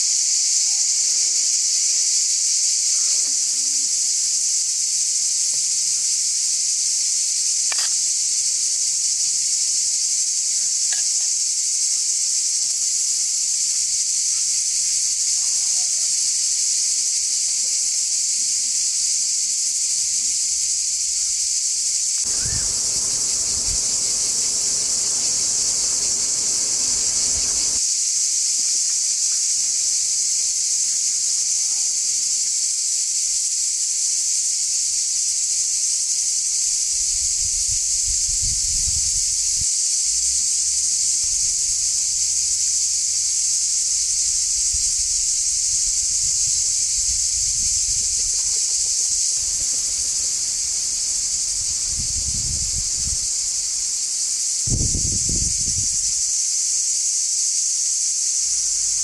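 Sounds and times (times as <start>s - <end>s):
high-pitched insect chorus: 0.0s - 59.0s
low muffled rushing noise: 22.3s - 27.8s.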